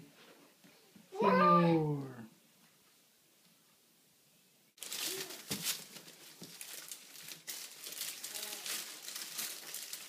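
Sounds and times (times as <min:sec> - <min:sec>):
plastic packaging crinkling: 0:04.8 - 0:10.0.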